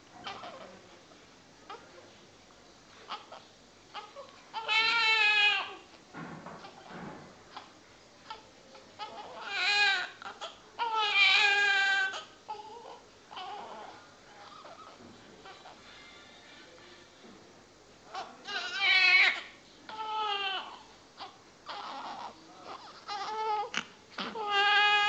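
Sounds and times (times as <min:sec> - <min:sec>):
baby crying: 0:04.0 - 0:05.8, 0:09.0 - 0:15.8, 0:18.5 - 0:25.0
baby whimpering: 0:07.5 - 0:15.8, 0:18.2 - 0:25.0.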